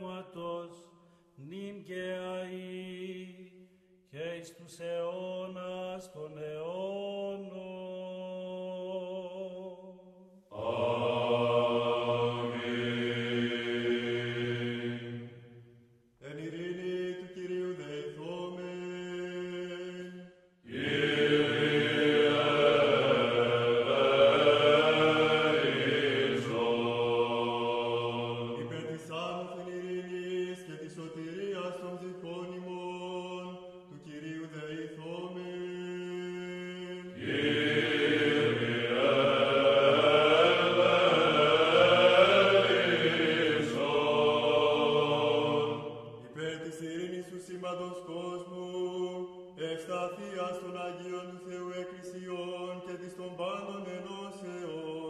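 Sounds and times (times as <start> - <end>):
voices chanting: 10.6 - 15.3, 20.7 - 29.0, 37.2 - 46.2.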